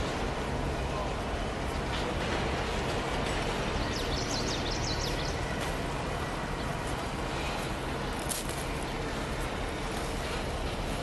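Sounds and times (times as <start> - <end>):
train wheels on rails: 0.0 - 11.0
bird chirping: 3.8 - 5.4.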